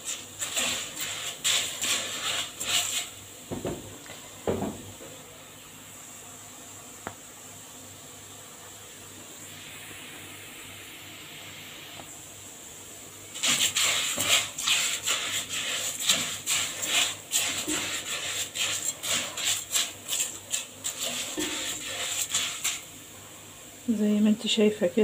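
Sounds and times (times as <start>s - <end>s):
spatula scraping a pot: 0.0s - 3.2s, 13.4s - 22.9s
rice sizzling in oil: 0.0s - 25.0s.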